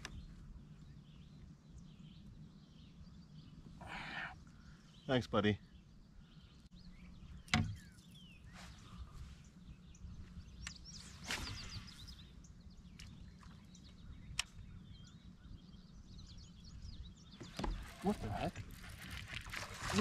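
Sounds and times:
small birds chirping: 0:00.0 - 0:20.0
fishing rod swishing: 0:11.1 - 0:12.0.

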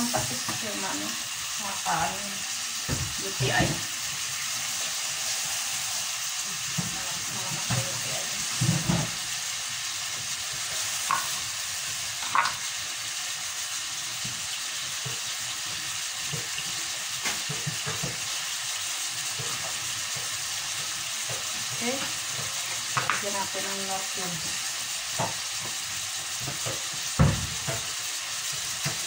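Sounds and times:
chicken sizzling in oil: 0:00.0 - 0:29.0.

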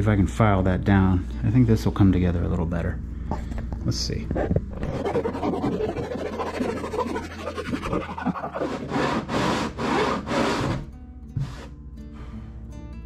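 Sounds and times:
hand file rasping: 0:04.3 - 0:11.7.

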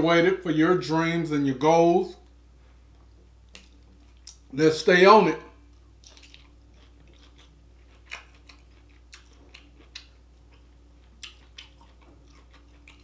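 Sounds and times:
low steady hum: 0:00.0 - 0:13.0
chewing and lip-smacking: 0:03.0 - 0:04.5, 0:05.6 - 0:13.0.

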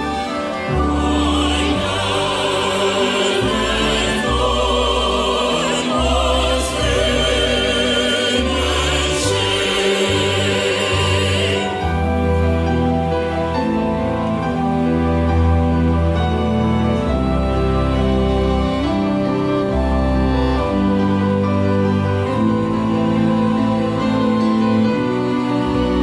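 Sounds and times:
mixed choir singing: 0:00.0 - 0:14.8
string ensemble: 0:00.0 - 0:26.0.

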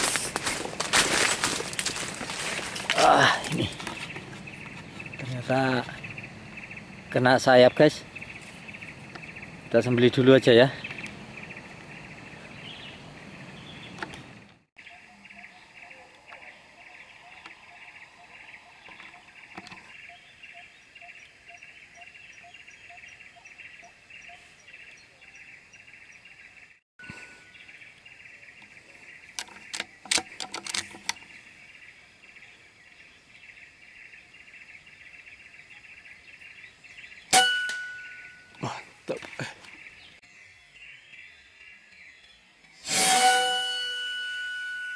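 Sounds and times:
insects droning: 0:00.0 - 0:37.3
bird calling: 0:00.0 - 0:40.5
sharp clicks: 0:29.3 - 0:31.2.

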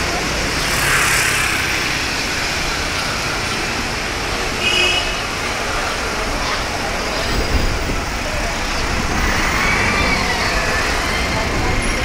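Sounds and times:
road traffic: 0:00.0 - 0:12.0.

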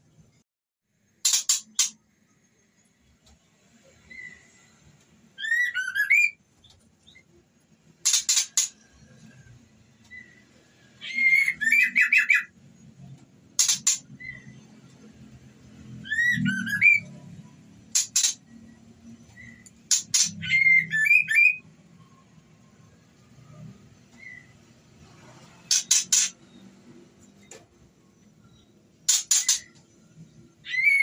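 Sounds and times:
bird whistled notes: 0:05.4 - 0:06.4, 0:16.0 - 0:17.2
bird harsh calls: 0:11.0 - 0:12.6, 0:13.5 - 0:14.7, 0:19.3 - 0:21.6, 0:25.6 - 0:26.4, 0:29.1 - 0:29.8, 0:30.6 - 0:31.0.

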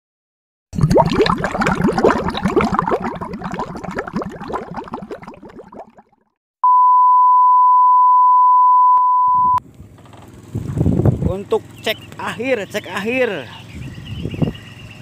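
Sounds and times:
watery bubbling: 0:00.7 - 0:06.2
steady test tone beep: 0:06.6 - 0:09.6.

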